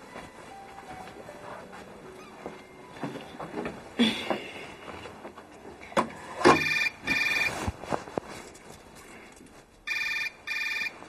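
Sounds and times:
mobile phone electronic ringtone: 0:06.6 - 0:07.6, 0:09.9 - 0:11.0.

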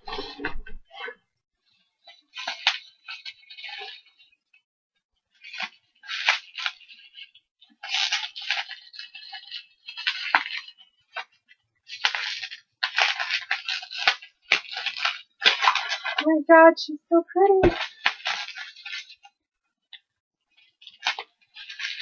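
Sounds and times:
bubble wrap crinkling: 0:02.0 - 0:04.4, 0:05.3 - 0:16.3, 0:17.7 - 0:19.4, 0:20.6 - 0:22.0.

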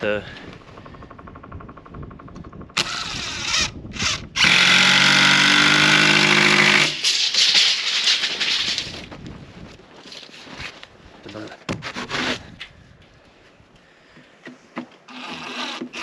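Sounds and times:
impact driver driving screw into wood: 0:02.8 - 0:07.5, 0:15.1 - 0:16.0.

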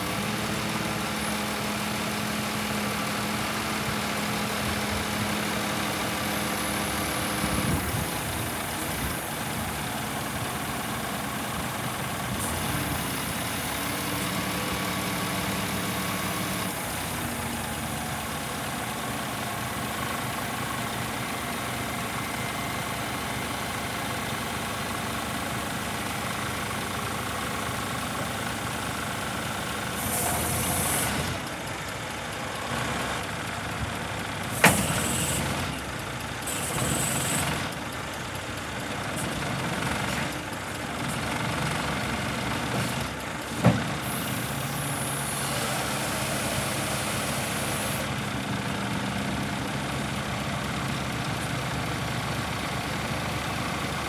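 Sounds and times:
truck diesel engine running: 0:00.0 - 0:54.0.

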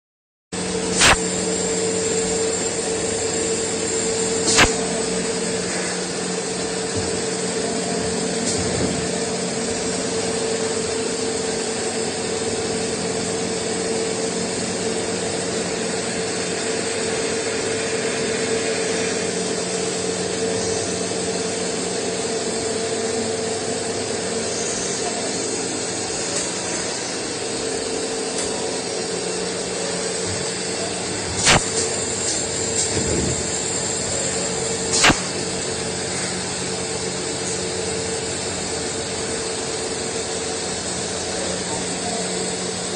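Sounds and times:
lathe machine hum: 0:00.6 - 0:42.9
sharp click: 0:01.0 - 0:01.2, 0:04.4 - 0:04.9, 0:31.4 - 0:33.1, 0:34.9 - 0:35.4.

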